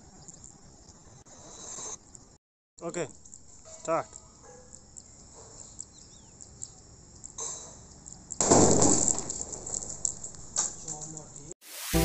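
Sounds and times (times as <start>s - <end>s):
firecracker bang: 8.4s - 9.4s.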